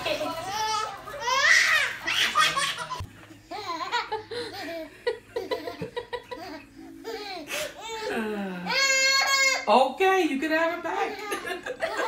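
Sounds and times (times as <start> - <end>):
baby and toddler giggling: 2.0 - 8.1.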